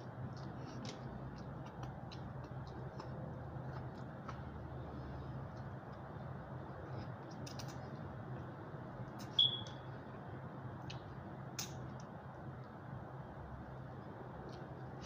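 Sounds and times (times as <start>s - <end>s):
person chewing food: 0.0s - 8.6s
steady low hum: 0.0s - 15.0s
short high ping: 9.4s - 9.7s.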